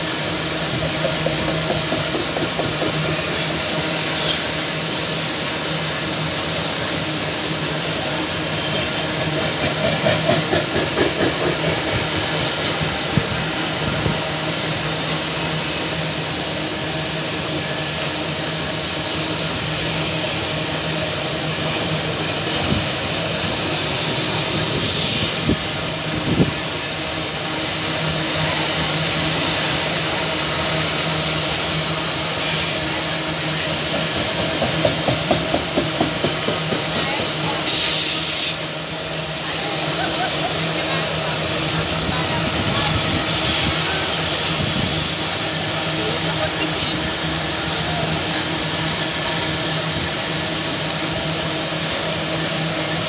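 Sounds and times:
steel wheels rumbling on rails: 0:00.0 - 0:53.0
wheels clacking over rail joints: 0:33.9 - 0:37.6.

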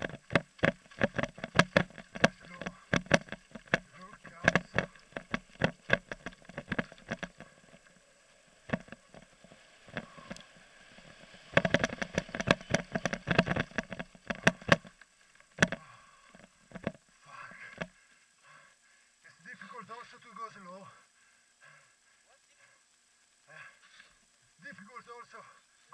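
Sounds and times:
bike rattling over rocky trail: 0:00.0 - 0:08.0, 0:08.6 - 0:17.0.

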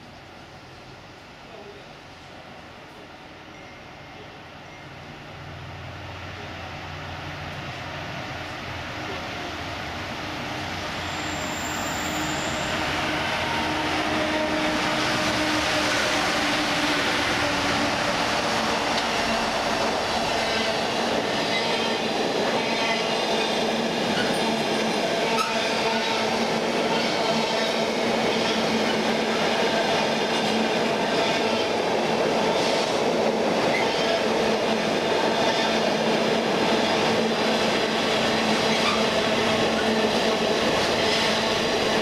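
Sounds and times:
diesel locomotives passing: 0:00.1 - 0:42.0.

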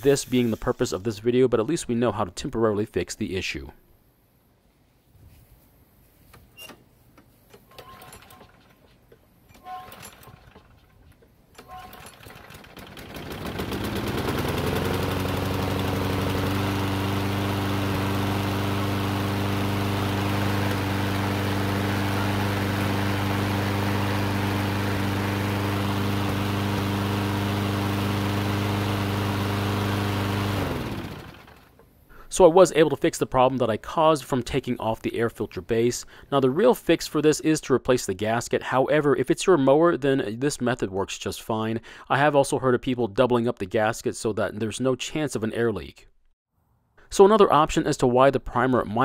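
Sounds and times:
lawn mower engine running: 0:09.6 - 0:11.0, 0:11.6 - 0:31.8.

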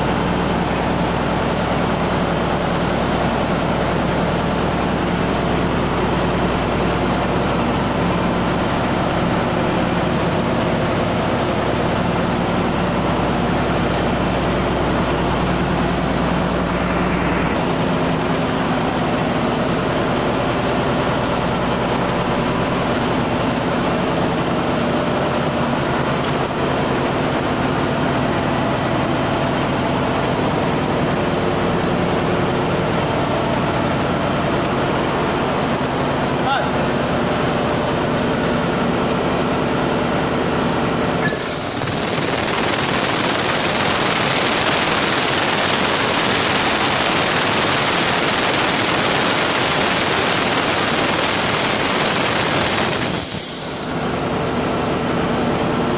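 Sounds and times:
engine-room machinery drone: 0:00.0 - 0:55.9.

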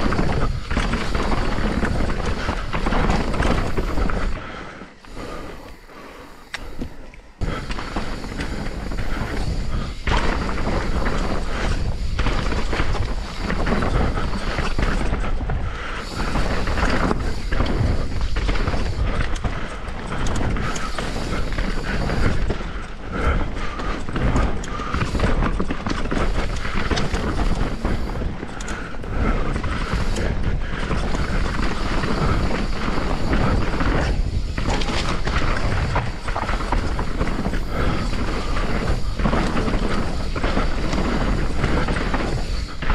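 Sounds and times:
wind noise on microphone: 0:00.0 - 0:04.4, 0:24.1 - 0:42.9
bike tyres bouncing over rocks: 0:00.0 - 0:05.8, 0:06.4 - 0:42.9.

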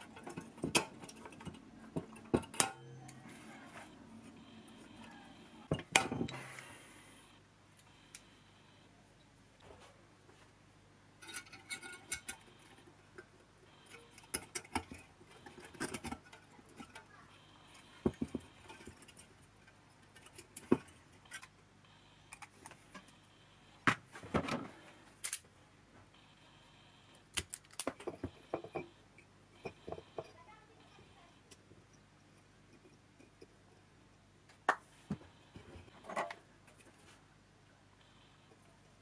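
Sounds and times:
small metal parts clicking and rattling: 0:11.2 - 0:12.8, 0:27.3 - 0:28.7.

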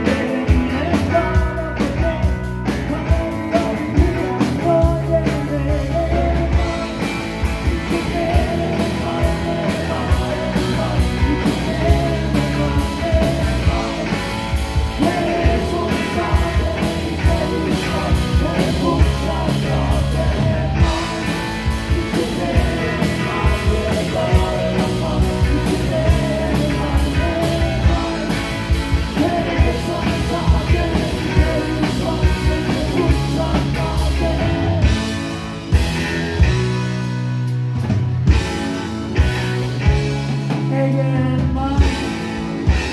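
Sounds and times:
man singing: 0:00.0 - 0:35.3, 0:40.5 - 0:42.9
rock band playing: 0:00.0 - 0:42.9.

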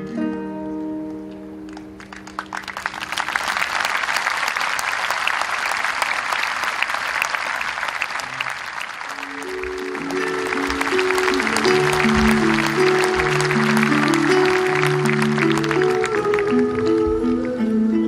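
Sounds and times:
audience applauding: 0:01.7 - 0:17.6
instrument notes: 0:09.1 - 0:18.0.

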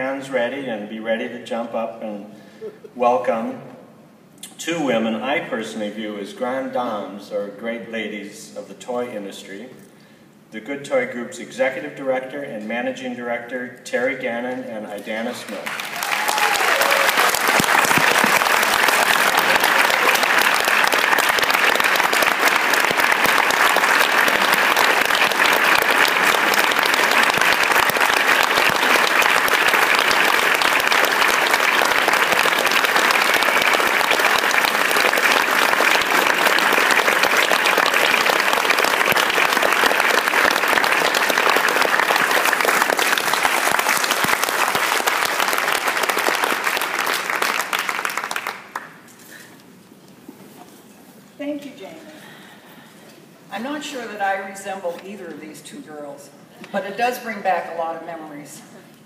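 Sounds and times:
large audience clapping: 0:15.3 - 0:49.6.

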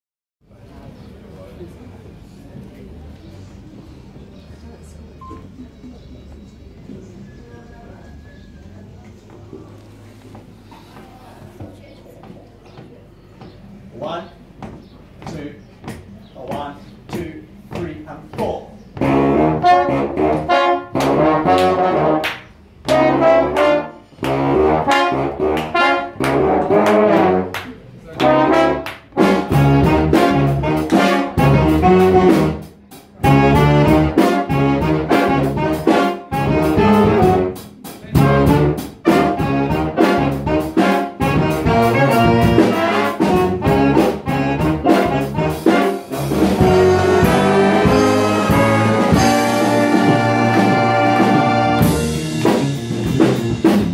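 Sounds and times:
jazz big band playing: 0:18.9 - 0:53.9.

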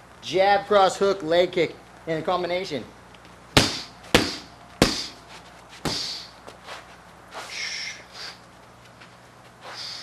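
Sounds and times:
gloved punches smacking strike pads: 0:03.6 - 0:05.2, 0:05.8 - 0:06.3
leg kick landing on pad: 0:03.6 - 0:05.2, 0:05.8 - 0:06.2.

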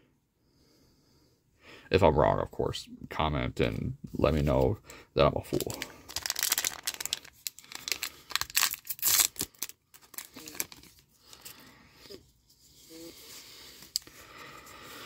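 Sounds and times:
foil pack tearing and crinkling: 0:05.6 - 0:11.4.

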